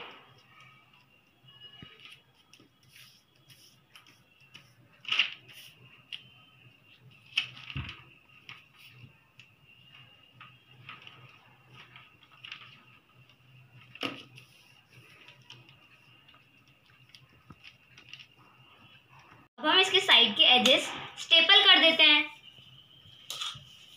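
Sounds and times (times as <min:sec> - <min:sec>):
paper rustling: 0:01.8 - 0:06.2, 0:07.1 - 0:18.4.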